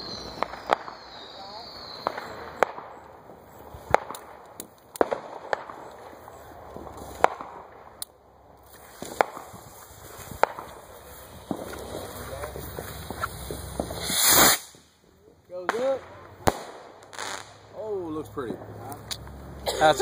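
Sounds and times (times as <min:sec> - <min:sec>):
firecracker bangs: 0:00.0 - 0:03.0, 0:03.8 - 0:05.9, 0:06.8 - 0:07.9, 0:09.0 - 0:15.0, 0:15.6 - 0:17.7.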